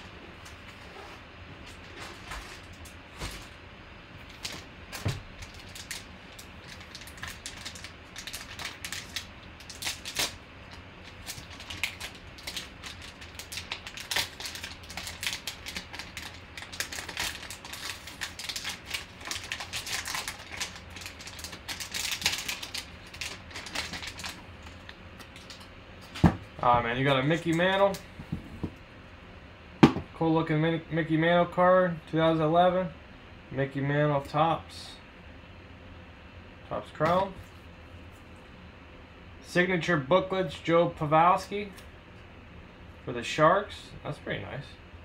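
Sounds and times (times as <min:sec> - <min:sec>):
foil pack crinkling: 0:04.2 - 0:26.1.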